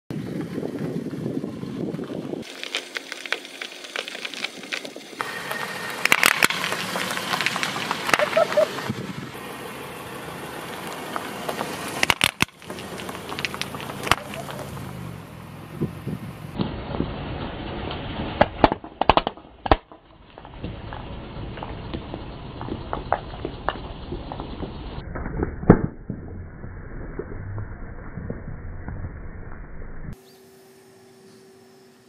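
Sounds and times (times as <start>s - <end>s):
car tyres rolling over gravel: 0.1s - 29.8s
sharp clicks and ticks: 10.8s - 14.9s.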